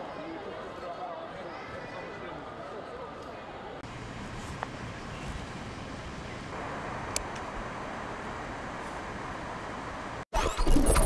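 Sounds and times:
road traffic hum: 3.8s - 10.2s.

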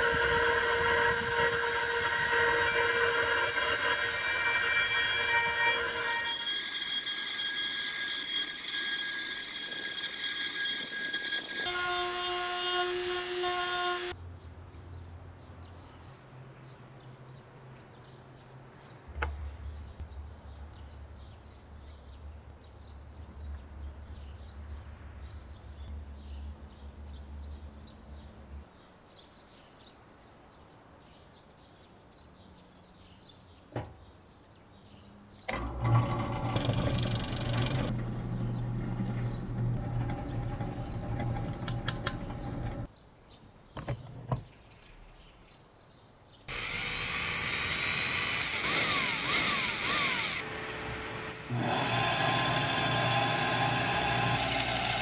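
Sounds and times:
power router high whine: 0.0s - 14.1s, 46.5s - 55.0s
drill press boring into wood: 35.5s - 42.9s, 46.5s - 55.0s
low machine hum: 35.6s - 42.9s.

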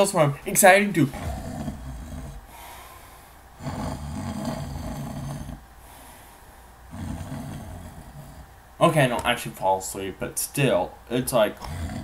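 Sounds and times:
man imitating snoring: 1.1s - 2.6s, 3.6s - 5.6s, 6.9s - 8.5s, 11.6s - 12.0s.

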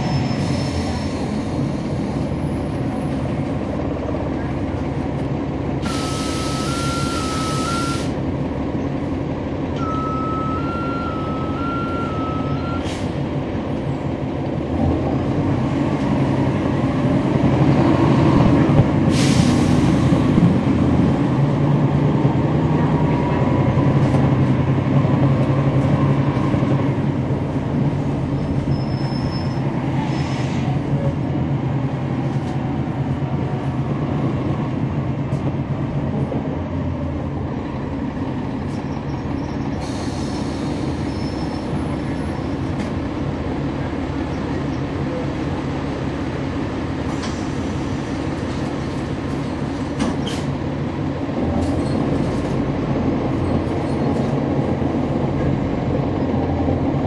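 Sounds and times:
bus diesel engine running: 0.0s - 57.0s
two-tone beep: 9.8s - 12.8s.

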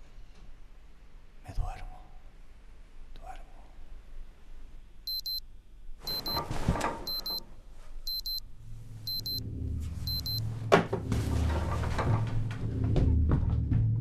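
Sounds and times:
alarm clock beeping: 5.1s - 5.4s, 6.1s - 6.5s, 7.1s - 7.4s, 8.1s - 8.4s, 9.1s - 10.4s
low music: 8.6s - 14.0s.

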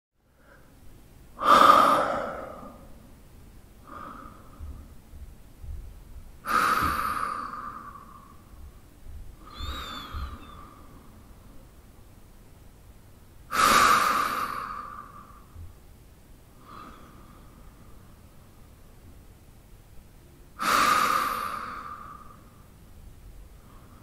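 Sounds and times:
man breathing in sleep: 1.4s - 3.0s, 3.8s - 5.0s, 6.4s - 8.7s, 9.4s - 11.3s, 13.5s - 15.7s, 16.6s - 18.2s, 20.6s - 22.7s, 23.6s - 24.0s
faint whistle in breath: 9.4s - 11.0s.

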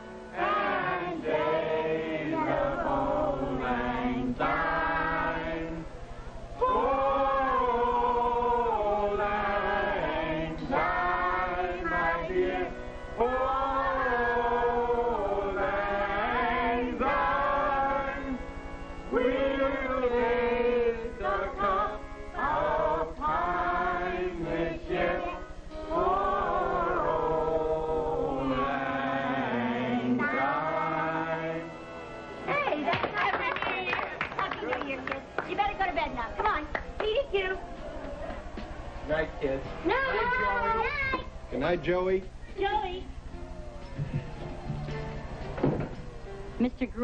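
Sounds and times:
low steady hum: 0.0s - 47.0s
group of voices singing: 0.2s - 32.5s.

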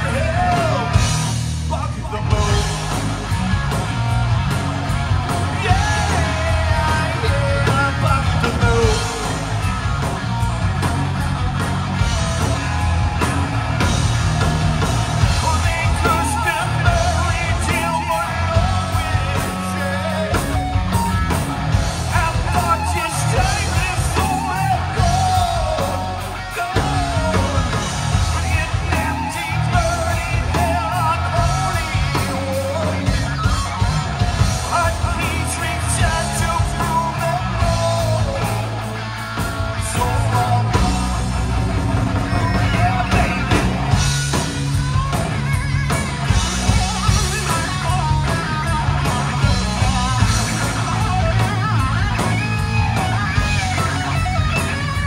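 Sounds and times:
bass guitar: 0.0s - 55.0s
distorted electric guitar: 0.0s - 55.0s
drums: 0.0s - 55.0s
person singing: 15.2s - 20.8s, 22.1s - 33.3s, 34.6s - 38.8s.

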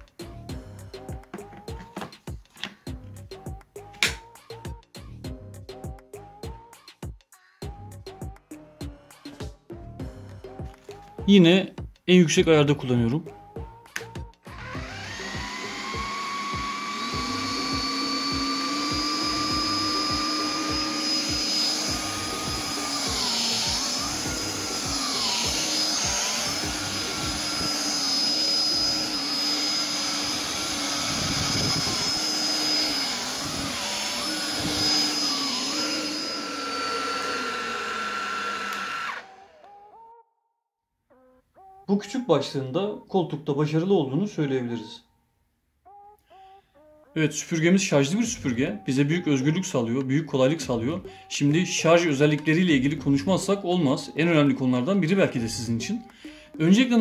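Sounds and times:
vacuum cleaner motor whine: 14.5s - 39.8s.

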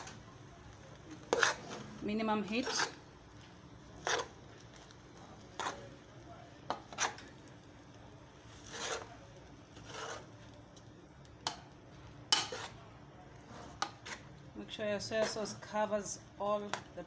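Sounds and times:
metal spoon scraping metal pot: 1.2s - 1.8s, 2.4s - 3.0s, 4.0s - 4.4s, 6.7s - 7.3s, 8.6s - 9.1s, 9.8s - 10.3s, 12.3s - 12.8s.

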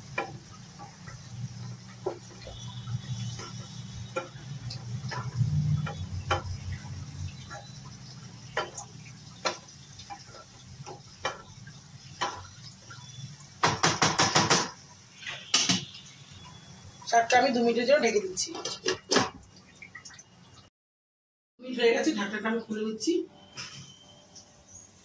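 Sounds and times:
spatula scraping a pan: 0.1s - 6.8s.

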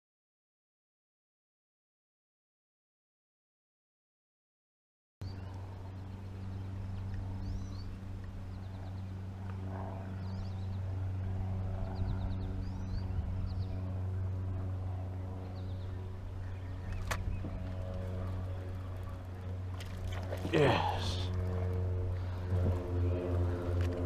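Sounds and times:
birds chirping: 5.2s - 9.3s, 11.8s - 23.8s
boat motor humming: 5.2s - 24.0s.

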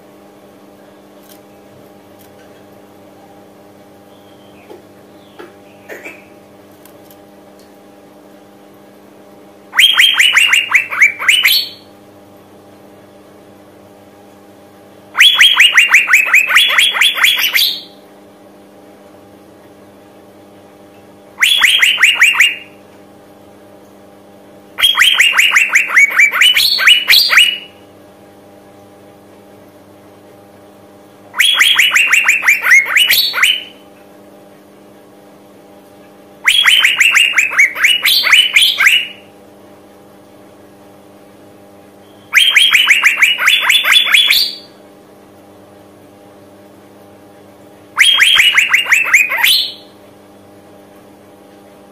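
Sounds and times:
bird trilling calls: 9.8s - 11.9s, 15.2s - 18.0s, 21.4s - 22.7s, 24.8s - 27.7s, 31.4s - 33.8s, 36.5s - 39.2s, 42.4s - 44.7s, 48.0s - 49.9s.

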